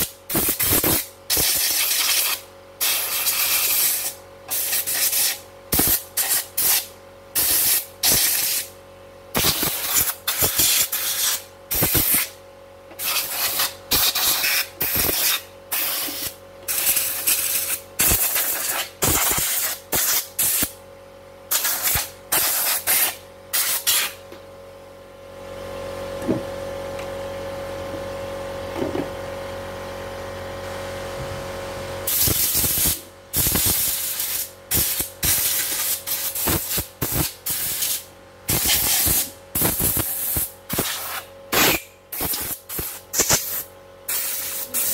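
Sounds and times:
compressed air blasts: 0:00.0 - 0:08.7, 0:09.3 - 0:12.4, 0:13.0 - 0:20.8, 0:21.5 - 0:24.2, 0:32.1 - 0:44.9.

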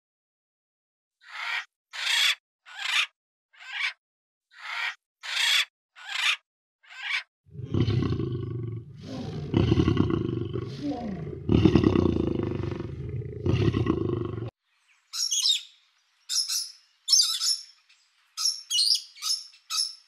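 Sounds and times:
big cat roaring: 0:07.5 - 0:14.5.

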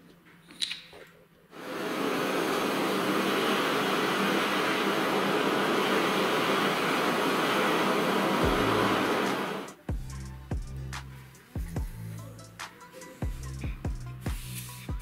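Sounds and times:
gas torch flame hissing: 0:01.6 - 0:09.8, 0:13.5 - 0:15.0.

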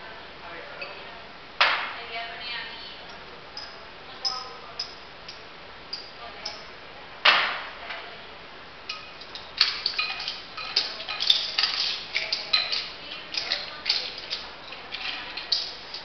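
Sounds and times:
metal and glass clinks: 0:08.9 - 0:16.0.

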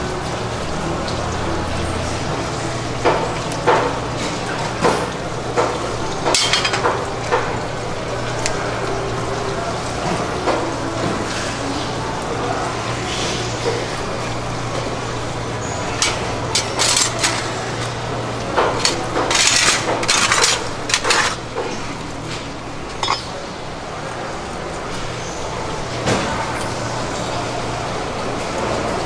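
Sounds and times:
knives and fish knocking on metal: 0:06.3 - 0:07.0, 0:16.0 - 0:17.5, 0:23.0 - 0:23.3.

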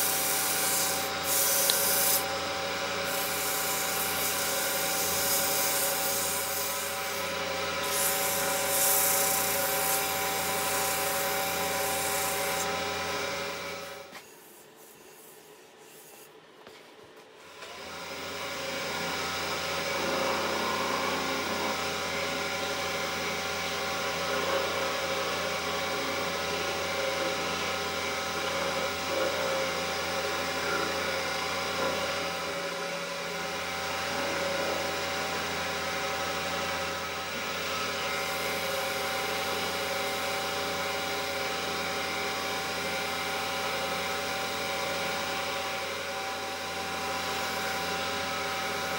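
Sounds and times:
wax and cloth rubbing wood: 0:00.0 - 0:02.3, 0:03.0 - 0:07.2, 0:14.1 - 0:16.8
wood lathe motor running: 0:00.0 - 0:14.1.

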